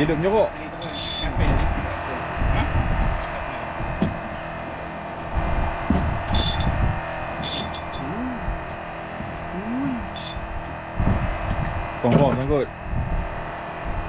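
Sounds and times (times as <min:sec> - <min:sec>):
boat engine humming: 0:00.0 - 0:14.0
high metallic clinks: 0:00.8 - 0:01.4, 0:06.3 - 0:06.8, 0:07.4 - 0:08.2, 0:10.1 - 0:10.6.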